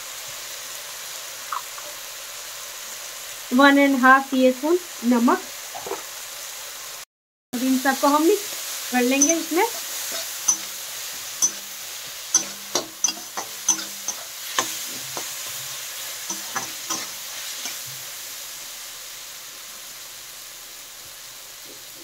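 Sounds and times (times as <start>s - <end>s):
frying sizzle: 0.0s - 22.0s
metal spatula scraping a pan: 9.1s - 18.1s.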